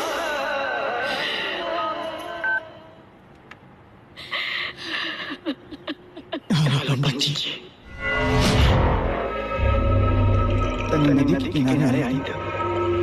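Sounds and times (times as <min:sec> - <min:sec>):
film background music: 0:06.9 - 0:13.0.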